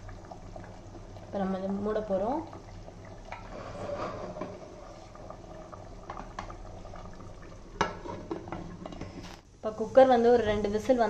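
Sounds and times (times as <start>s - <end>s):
water bubbling with pops: 0.0s - 3.6s, 4.2s - 9.2s.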